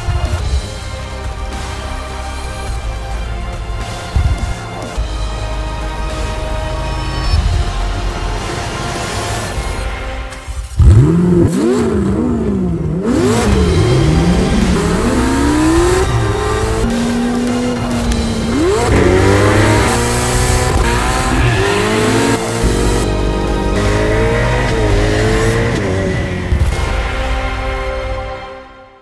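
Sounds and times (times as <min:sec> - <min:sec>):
sports car engine revving: 0:10.8 - 0:27.2.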